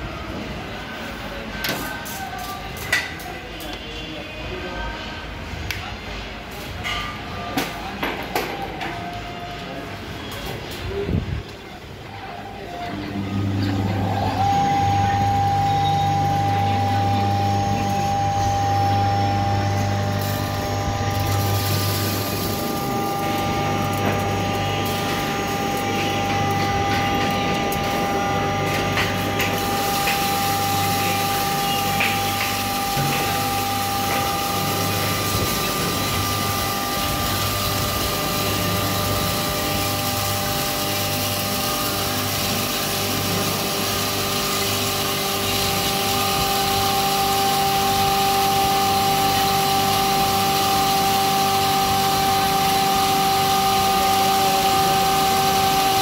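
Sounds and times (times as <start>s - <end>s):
flour mill grinding with whine: 12.9s - 56.0s.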